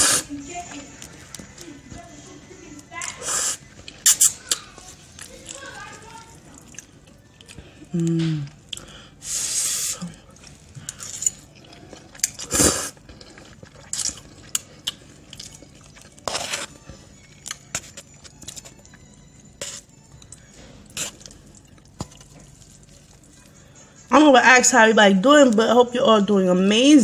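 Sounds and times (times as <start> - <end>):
chewing and mouth smacks: 3.0 - 8.9, 10.0 - 23.6
slurping noodles: 3.2 - 4.6, 9.2 - 11.1, 11.9 - 16.8.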